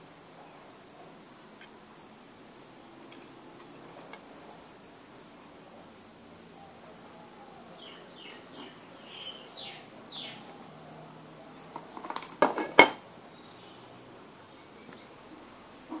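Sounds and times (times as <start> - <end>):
faint high chirps: 0.4 - 1.9, 6.5 - 12.0, 13.2 - 16.0.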